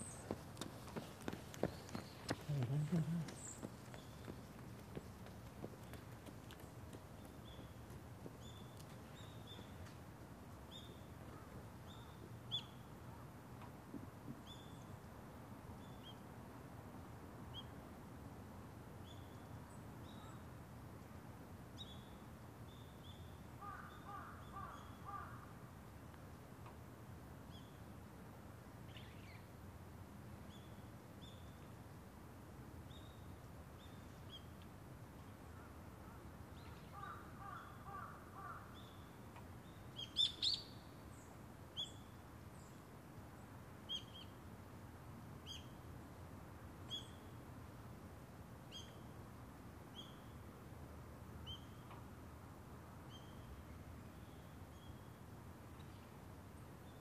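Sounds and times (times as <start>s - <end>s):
small birds chirping: 0.0s - 10.0s, 36.6s - 42.8s
distant crows cawing: 23.6s - 25.6s, 36.9s - 38.8s.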